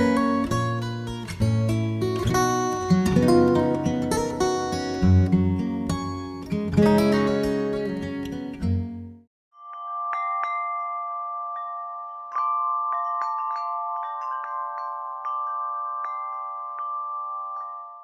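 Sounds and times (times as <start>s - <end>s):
bell-like struck notes: 9.5s - 18.0s.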